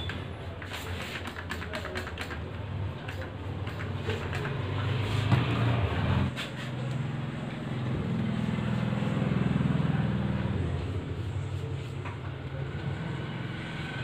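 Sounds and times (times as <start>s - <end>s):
spray bottle squirting: 0.5s - 4.6s.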